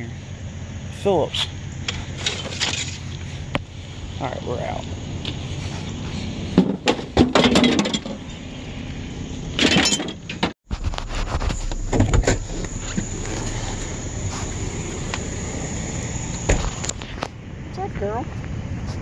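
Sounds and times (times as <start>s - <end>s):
metal tools clattering into truck bed: 1.9s - 3.1s, 6.6s - 8.4s, 9.6s - 10.6s
low rumble: 10.7s - 19.0s.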